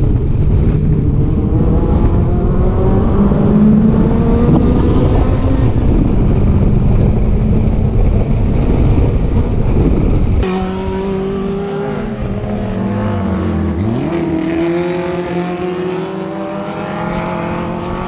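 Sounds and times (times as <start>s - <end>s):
heavy low rumble: 0.0s - 14.2s
race car engine revving: 0.0s - 18.0s.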